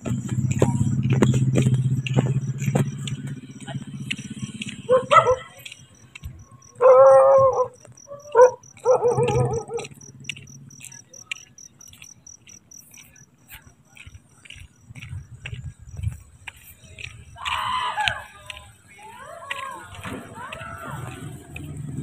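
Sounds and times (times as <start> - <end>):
cricket chirping: 0.0 - 22.0
dog barking: 4.6 - 5.8, 6.8 - 10.0.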